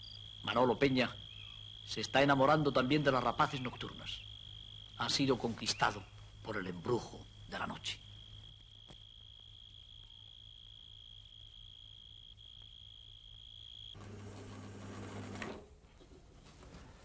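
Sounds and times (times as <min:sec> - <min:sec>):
insect trilling: 0:00.0 - 0:14.0
film-editing machine whirring: 0:14.0 - 0:15.7.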